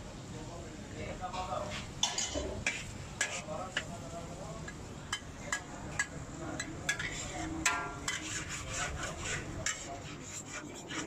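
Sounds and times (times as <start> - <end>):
metal spatula clanking on wok: 1.4 - 3.9, 4.6 - 8.4.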